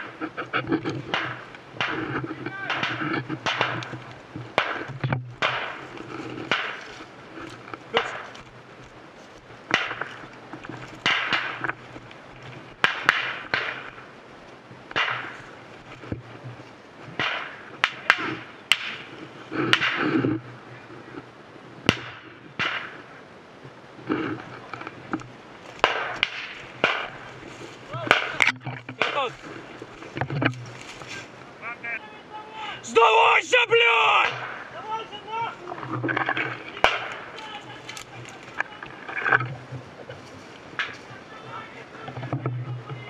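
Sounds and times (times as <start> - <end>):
sharp cracks: 0.0 - 14.1, 14.9 - 16.2, 17.1 - 20.4, 21.8 - 23.1, 24.1 - 31.3, 32.8 - 39.5, 40.7 - 41.1
footsteps rustling through brush: 0.0 - 21.4, 23.8 - 32.0, 33.2 - 42.8.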